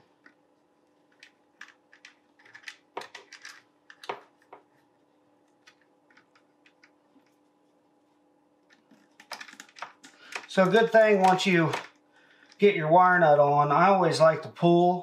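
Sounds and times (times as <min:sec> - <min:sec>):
faint steady hum: 0:00.0 - 0:15.0
clicks of wires being twisted: 0:08.6 - 0:12.6.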